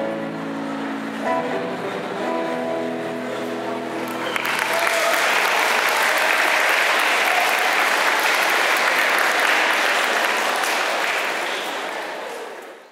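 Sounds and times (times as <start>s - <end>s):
audience applauding: 4.0s - 12.9s.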